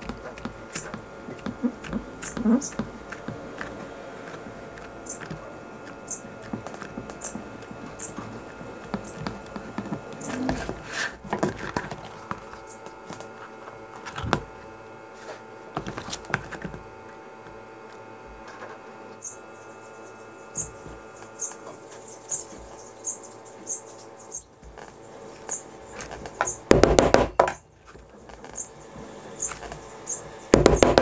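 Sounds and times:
louder knocks: 26.7s - 27.6s, 30.5s - 31.0s.

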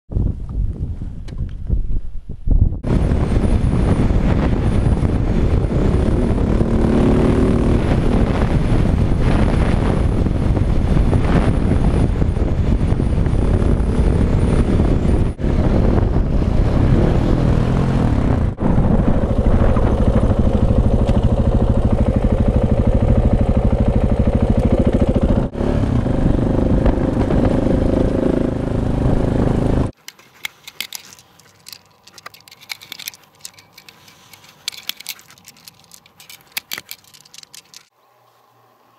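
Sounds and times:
wind noise: 0.1s - 23.7s, 24.7s - 37.9s
motorcycle engine running: 17.8s - 29.9s
small clicks and rattles: 30.0s - 37.9s.

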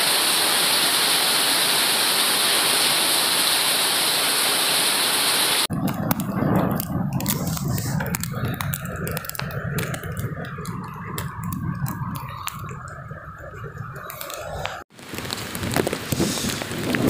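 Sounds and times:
heavy rain low rumble: 5.5s - 17.0s
raindrops tapping on phone: 5.7s - 17.0s.

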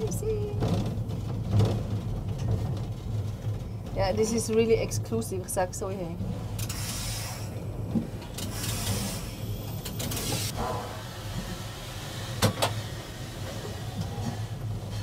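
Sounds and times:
steam locomotive rumbling: 0.0s - 15.0s
steam hisses: 6.6s - 7.6s, 8.5s - 9.5s, 10.2s - 15.0s.

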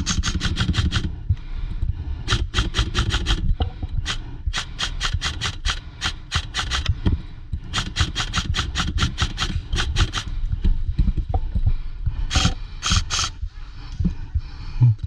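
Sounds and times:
airsoft guns firing: 0.0s - 1.2s, 2.2s - 6.9s, 7.7s - 10.3s, 12.3s - 13.4s.

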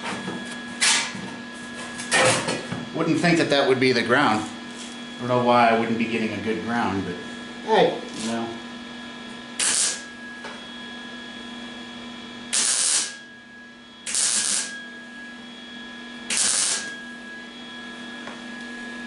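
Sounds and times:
welder hum: 0.0s - 19.0s
welding arc crackling hiss: 9.6s - 10.1s, 12.5s - 13.3s, 14.0s - 14.8s, 16.3s - 17.0s.

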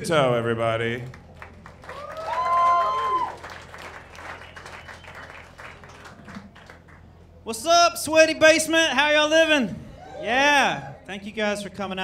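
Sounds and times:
small audience applauding: 1.0s - 7.1s
person cheering loudly: 2.1s - 3.4s.

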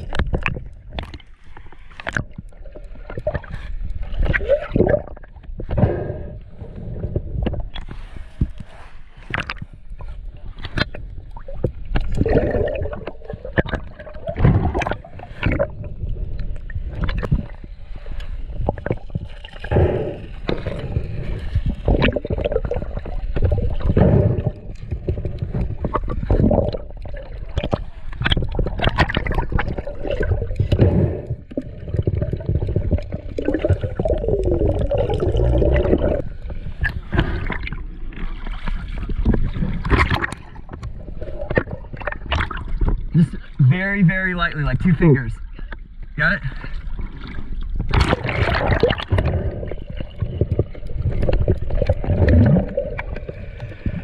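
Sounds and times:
water gurgling and sloshing: 0.0s - 54.0s
deep rumble: 18.6s - 44.2s.

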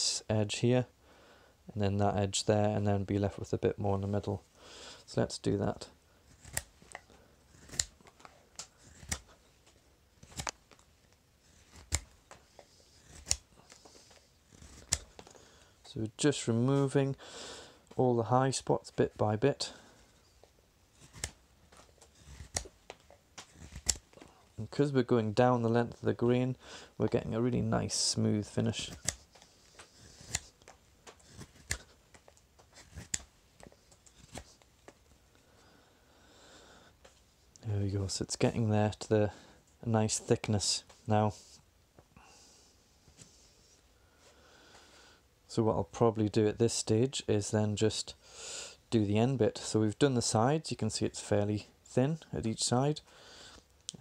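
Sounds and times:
knife cutting wood shavings: 6.2s - 8.0s, 8.6s - 9.4s, 10.2s - 10.6s, 11.5s - 15.3s, 20.9s - 24.1s, 27.9s - 32.0s, 32.8s - 33.3s.

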